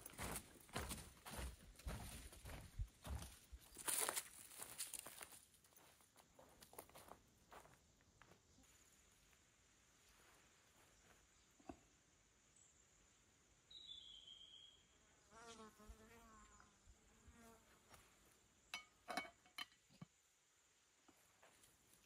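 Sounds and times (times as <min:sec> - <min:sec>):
flying insect buzzing: 0:15.2 - 0:17.7.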